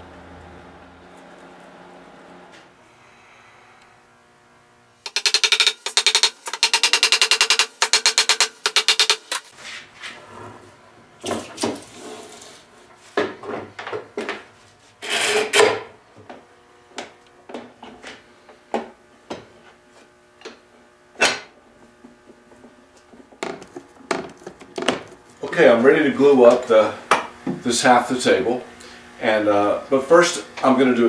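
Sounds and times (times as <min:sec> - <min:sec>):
hammer tapping on pins: 0:05.1 - 0:09.5.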